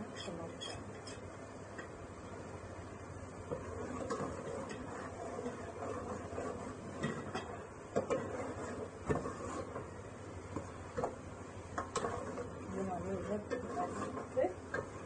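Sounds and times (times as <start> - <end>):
masala sizzling: 0.0 - 15.0
metal ladle stirring in a pot: 3.4 - 15.0.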